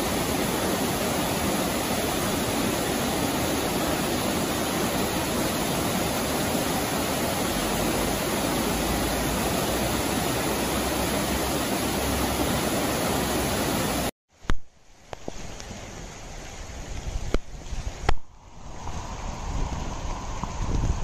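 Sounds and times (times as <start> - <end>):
floodwater rushing over weir: 0.0 - 14.1.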